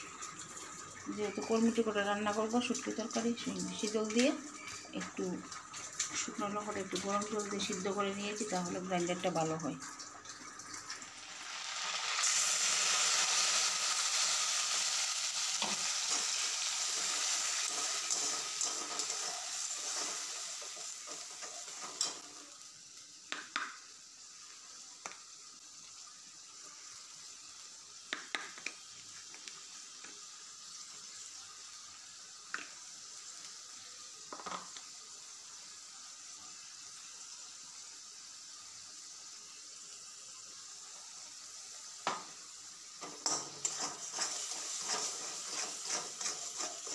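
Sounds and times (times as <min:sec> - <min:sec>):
food sizzling in hot oil: 0:00.0 - 0:46.9
metal spatula scraping wok: 0:15.6 - 0:22.4, 0:43.0 - 0:46.9
spatula tapping pan: 0:23.3 - 0:23.8, 0:28.1 - 0:28.8, 0:43.0 - 0:46.9.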